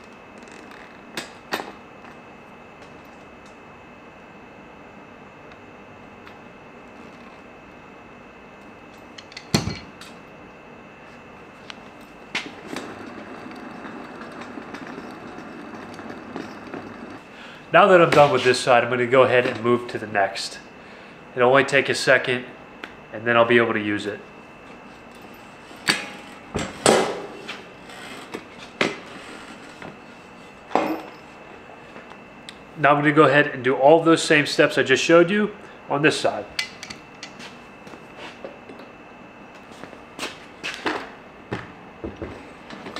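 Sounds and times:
wheel spinning with low whir: 0.0 - 3.6, 6.0 - 7.9, 11.4 - 19.6.

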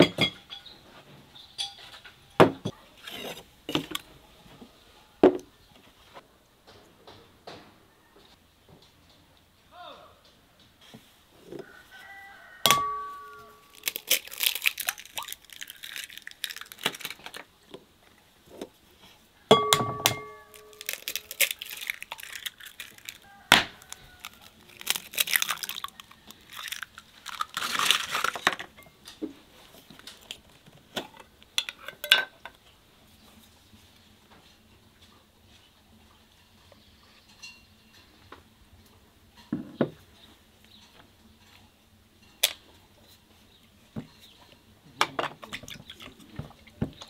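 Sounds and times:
eggshell crackling: 13.2 - 17.5, 20.4 - 28.6.

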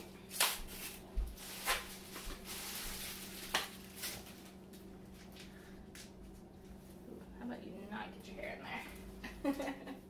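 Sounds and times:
faint steady hum: 0.0 - 10.0
foil wrapper crinkling: 0.3 - 5.5.

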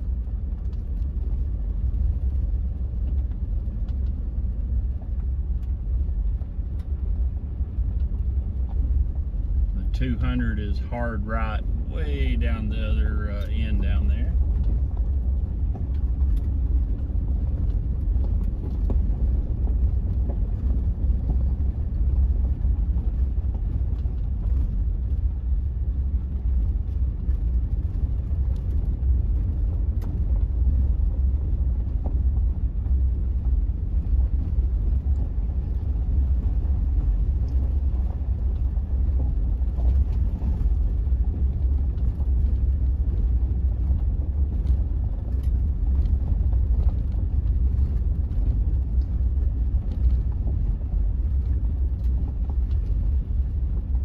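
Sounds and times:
vehicle driving on gravel road: 0.0 - 54.0.

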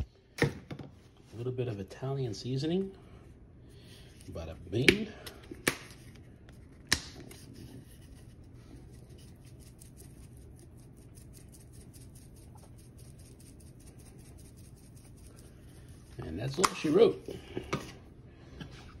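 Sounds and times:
dried herbs rattling from shaker: 8.8 - 16.3.

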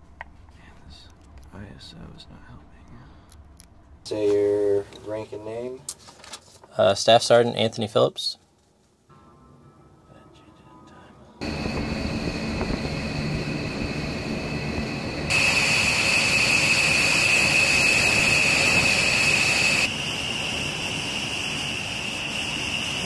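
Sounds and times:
jet turbine whine and rumble: 11.4 - 23.0.

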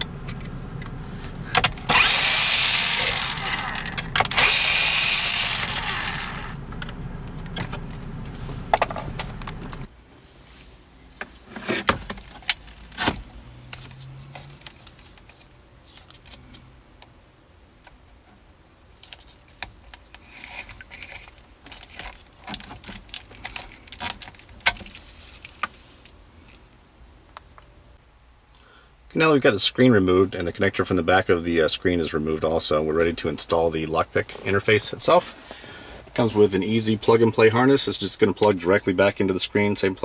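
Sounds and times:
electric screwdriver running: 1.8 - 6.6.

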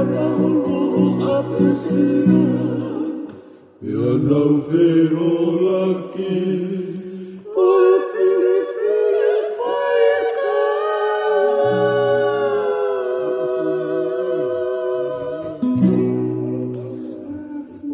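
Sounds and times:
acoustic guitars: 0.0 - 4.3, 10.8 - 17.9
men singing long held notes: 0.0 - 17.9.

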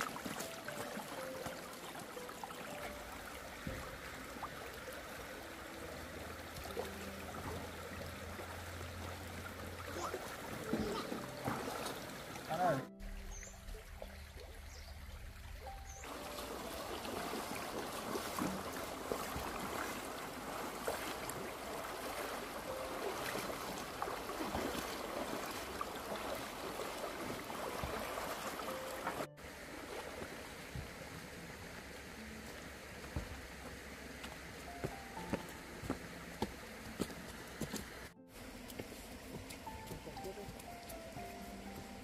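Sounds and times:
splashing of people wading: 0.0 - 12.6, 16.0 - 33.9
stream rushing over stones: 0.0 - 42.0.

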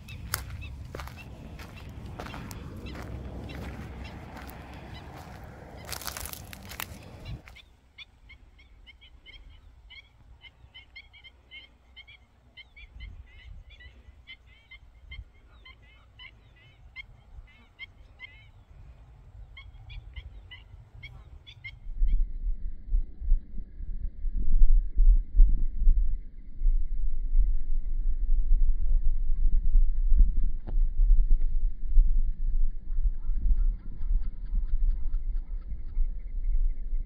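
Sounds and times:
footsteps through dry vegetation: 0.0 - 7.7
birds yelping calls: 0.0 - 18.8, 19.4 - 21.9
low wind rumble: 0.0 - 37.0.

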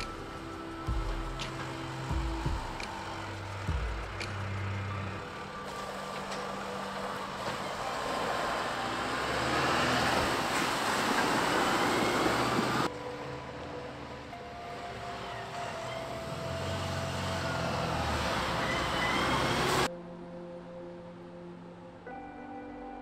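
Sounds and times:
tyres on gravel: 0.0 - 13.0
diesel truck engine running: 0.0 - 19.9.

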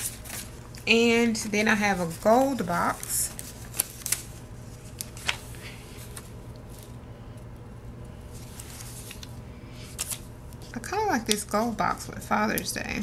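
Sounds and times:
paper rustling: 0.0 - 7.0, 8.3 - 10.6
steady low hum: 0.0 - 13.0.

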